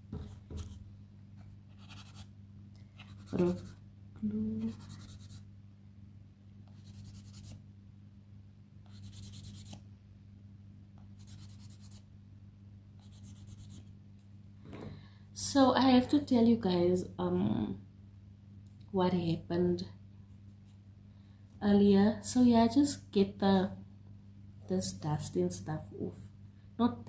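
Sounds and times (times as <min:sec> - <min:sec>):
low electrical hum: 0:00.0 - 0:27.0
nail buffer rasping on fingernail: 0:01.7 - 0:02.3, 0:06.8 - 0:07.6.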